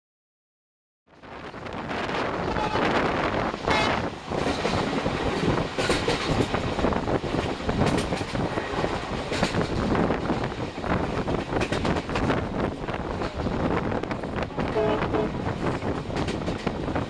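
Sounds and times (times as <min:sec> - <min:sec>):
train wheels rumbling on track: 0:01.1 - 0:17.0
clacks over rail joints: 0:03.5 - 0:17.0.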